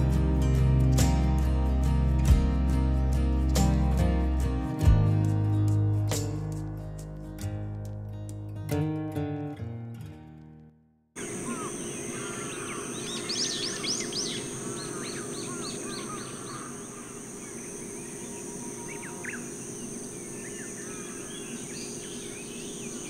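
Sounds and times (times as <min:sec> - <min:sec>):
birds singing and calling: 0:11.2 - 0:23.0
high insect drone: 0:11.2 - 0:23.0.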